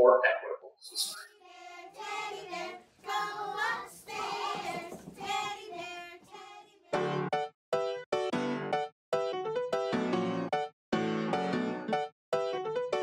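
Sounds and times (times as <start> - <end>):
children singing: 1.0 - 7.0.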